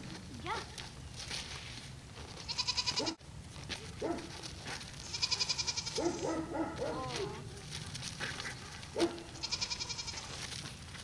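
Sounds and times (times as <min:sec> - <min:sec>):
goats bleating: 0:02.5 - 0:03.2, 0:05.0 - 0:06.0, 0:09.4 - 0:10.3.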